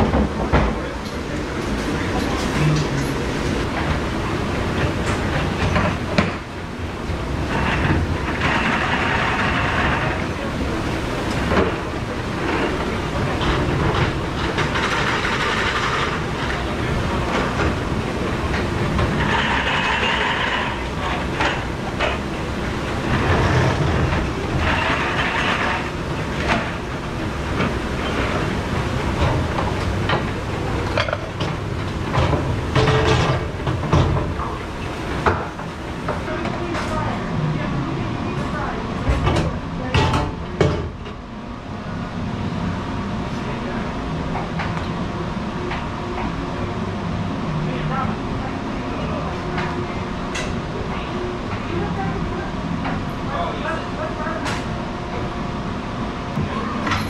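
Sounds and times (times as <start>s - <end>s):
dish machine washing: 0.0s - 41.2s
dish racks and dishes clattering: 12.4s - 22.3s, 23.0s - 37.0s.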